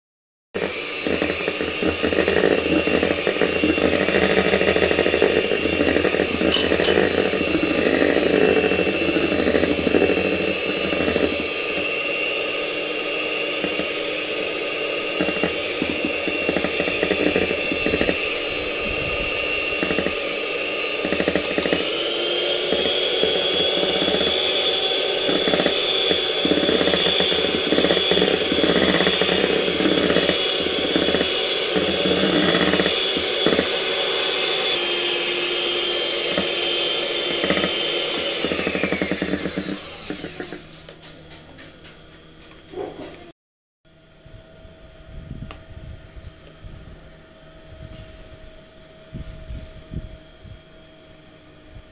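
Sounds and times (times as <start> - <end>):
electric hand mixer whisking: 0.6 - 41.7.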